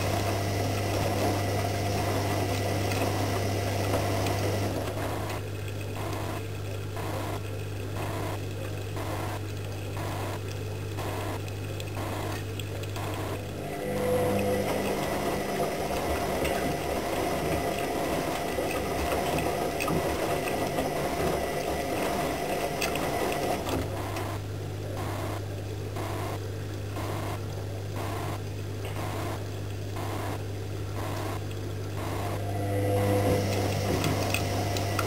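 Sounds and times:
washing machine motor running: 0:00.0 - 0:35.0
water sloshing in drum: 0:14.3 - 0:24.0.

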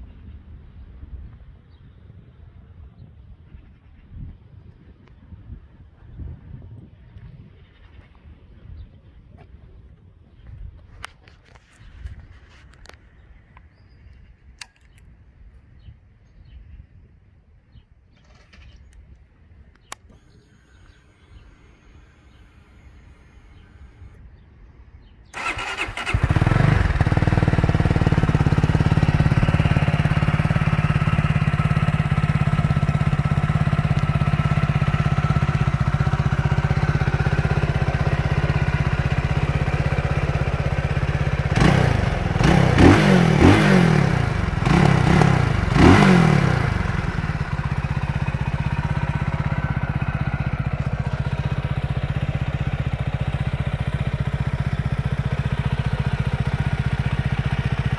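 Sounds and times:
motorcycle engine starting and idling: 0:10.3 - 0:15.2, 0:17.7 - 0:57.9
motorcycle engine revving: 0:25.3 - 0:57.9.

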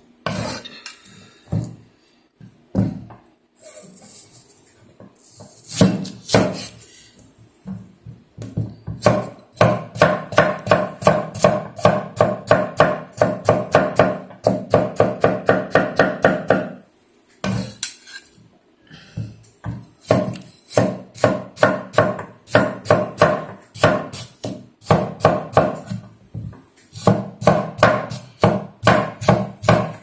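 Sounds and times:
cleaver chopping on wooden board: 0:05.7 - 0:06.7, 0:19.6 - 0:30.0.

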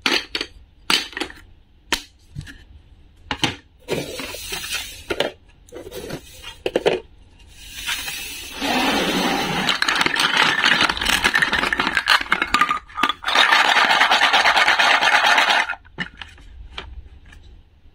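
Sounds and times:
plastic toy pieces clattering: 0:09.4 - 0:16.4.

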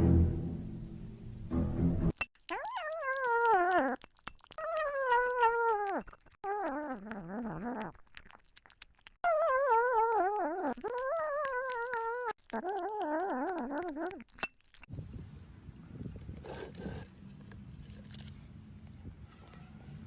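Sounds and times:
wet clicking chewing: 0:02.1 - 0:14.9.

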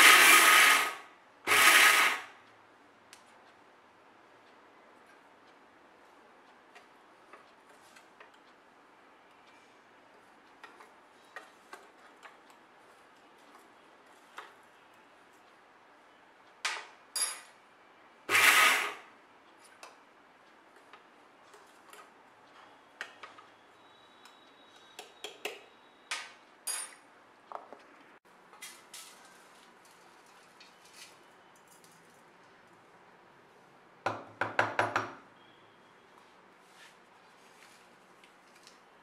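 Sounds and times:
mixer grinder whirring: 0:00.0 - 0:02.3, 0:18.3 - 0:19.0.

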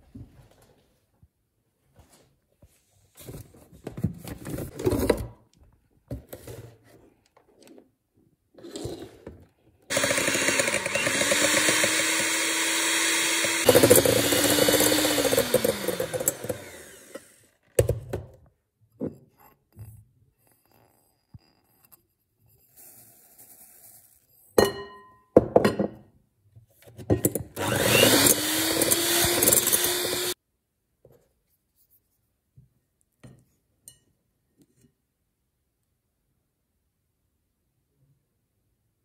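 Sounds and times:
small electric motor whirring: 0:09.9 - 0:17.5, 0:27.6 - 0:30.4.

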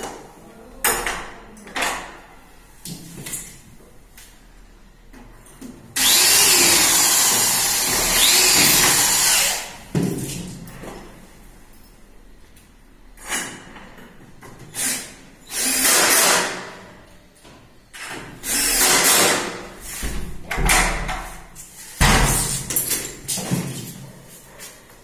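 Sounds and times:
cordless drill driving screws: 0:06.0 - 0:09.7, 0:14.8 - 0:16.5, 0:18.4 - 0:19.4.

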